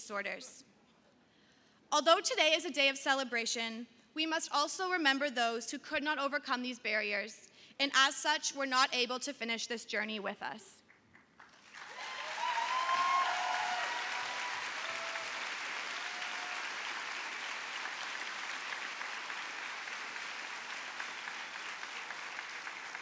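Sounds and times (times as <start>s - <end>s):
audience applauding: 11.2s - 23.0s.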